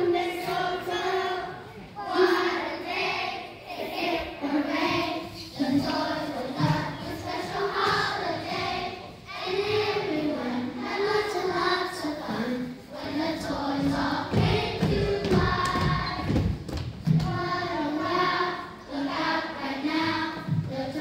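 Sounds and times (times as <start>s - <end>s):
children's choir singing: 0.0s - 21.0s.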